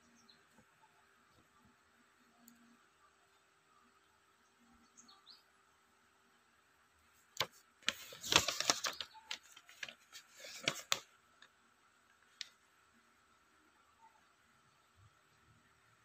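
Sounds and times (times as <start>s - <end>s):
paper pages rustling: 7.3s - 11.1s.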